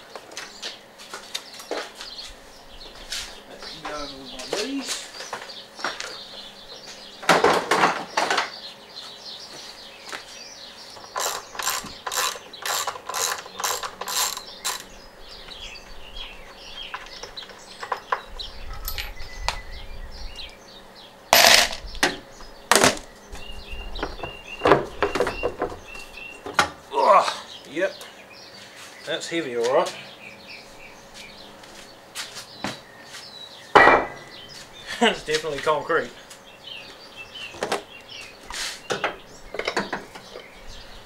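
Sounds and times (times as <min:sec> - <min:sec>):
loud knocks of parts: 0:07.2 - 0:08.6, 0:21.4 - 0:23.1, 0:33.7 - 0:34.4
ratchet wrench clicking: 0:11.0 - 0:14.9.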